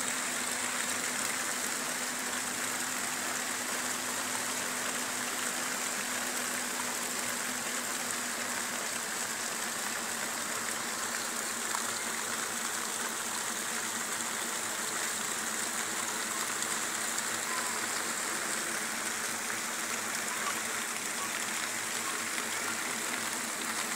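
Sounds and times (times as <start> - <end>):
heavy rain: 0.0 - 23.9.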